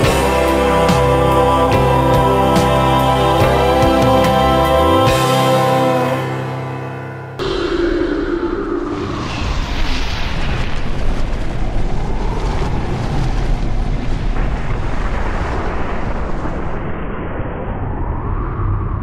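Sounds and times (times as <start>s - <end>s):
cinematic rumble: 6.2s - 19.0s.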